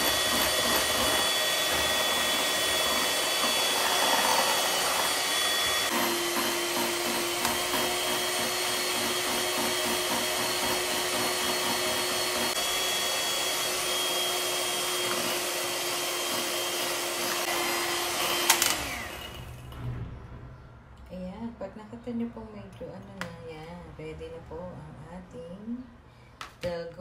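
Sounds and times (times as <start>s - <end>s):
electric hand mixer running: 0.0s - 19.7s.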